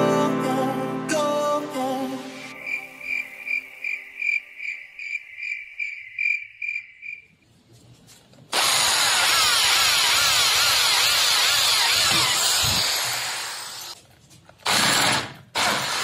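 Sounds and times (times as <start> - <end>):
pulsing high chirps: 2.3 - 7.3
electric drill boring into wood: 8.5 - 14.0, 14.6 - 16.0.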